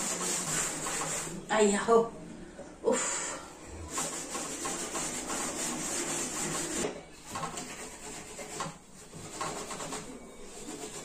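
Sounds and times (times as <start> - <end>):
hand scrubbing a surface: 0.0 - 1.4, 3.9 - 11.0.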